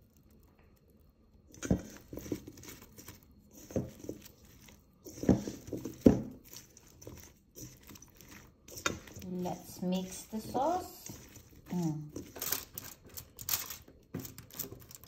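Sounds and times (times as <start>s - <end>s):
vegetables knocking in a metal bowl: 5.0s - 15.0s.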